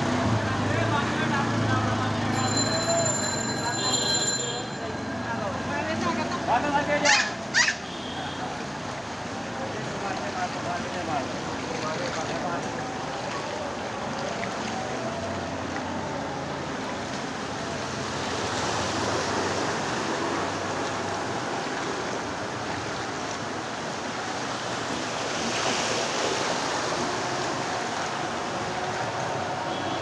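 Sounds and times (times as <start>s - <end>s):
floodwater sloshing: 8.5s - 29.3s.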